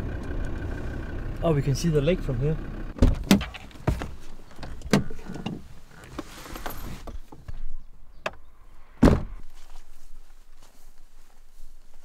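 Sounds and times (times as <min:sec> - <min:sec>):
car door slamming: 0:03.0 - 0:05.2, 0:09.0 - 0:09.4.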